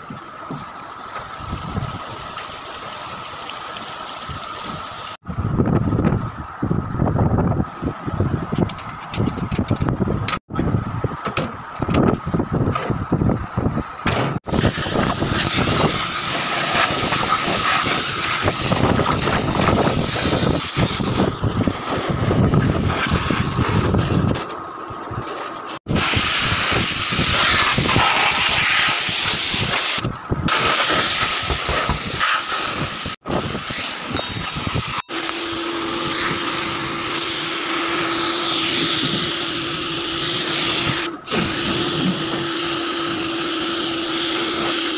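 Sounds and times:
rushing water and machinery: 0.0 - 5.5, 7.8 - 44.9
pressure washer spraying: 14.5 - 24.9, 25.9 - 44.9.

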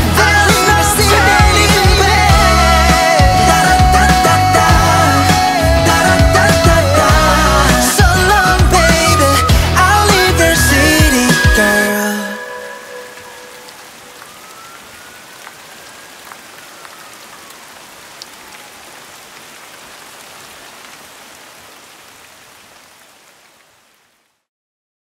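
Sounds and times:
heavy rain falling: 0.0 - 24.4
raindrop ticks: 13.7 - 19.9.

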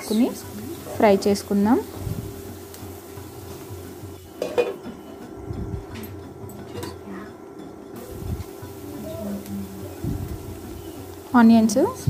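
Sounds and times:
faint sizzle: 0.0 - 5.8, 8.0 - 12.0
glass lid clanking on pan: 4.4 - 4.8.

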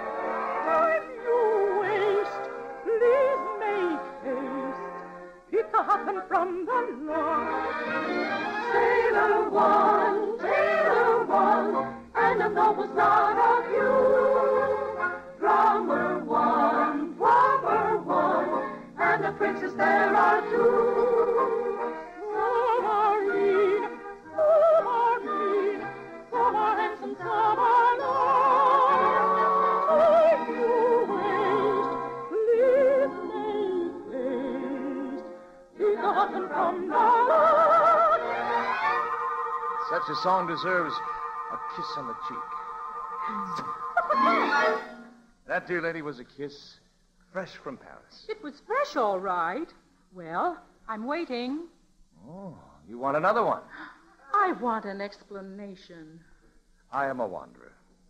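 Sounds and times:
soprano singing with vibrato: 0.0 - 45.3, 54.2 - 55.0
orchestral accompaniment: 7.0 - 46.0
orchestra playing: 7.3 - 17.0, 38.0 - 45.3.

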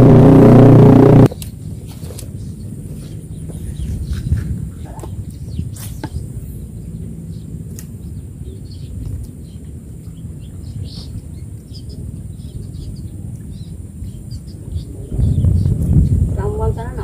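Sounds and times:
low rumble: 0.0 - 1.3.

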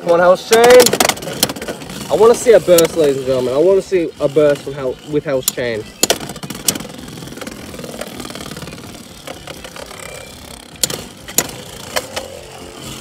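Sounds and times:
tops colliding clacks: 0.5 - 3.1, 5.4 - 8.1
spinning tops whirring: 0.5 - 13.0.

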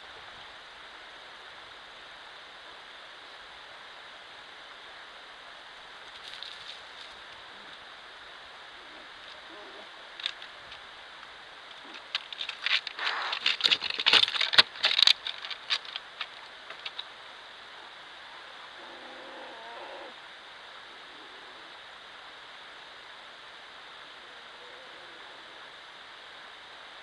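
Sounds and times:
camera hiss: 0.0 - 27.0
sharp clicks and rustling knocks: 11.7 - 17.1.

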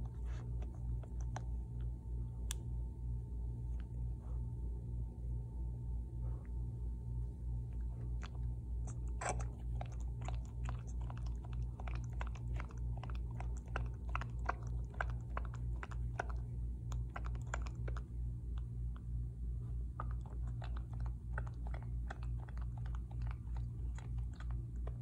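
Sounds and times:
puppy sucking on pacifier: 8.2 - 18.0.

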